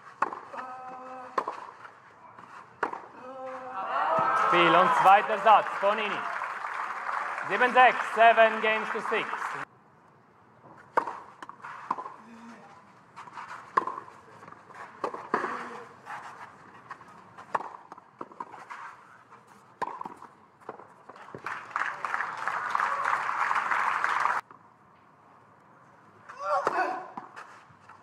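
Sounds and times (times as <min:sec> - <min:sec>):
tennis ball hitting racquets: 0:00.0 - 0:03.6, 0:10.7 - 0:12.2, 0:13.1 - 0:19.1, 0:19.7 - 0:21.5, 0:26.4 - 0:28.0
crowd applause and cheering: 0:03.8 - 0:09.6, 0:21.4 - 0:24.4.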